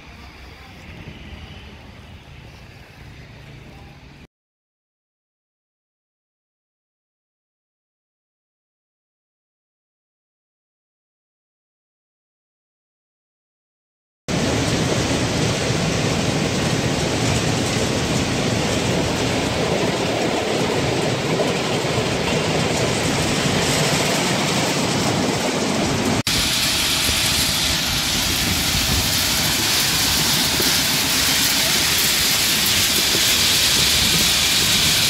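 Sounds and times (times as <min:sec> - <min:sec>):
hissy material running off conveyor: 0:14.3 - 0:35.0.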